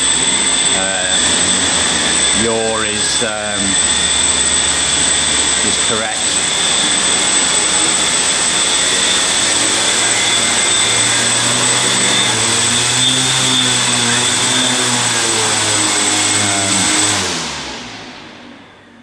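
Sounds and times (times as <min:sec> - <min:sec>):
drone motors whirring: 0:00.0 - 0:19.0.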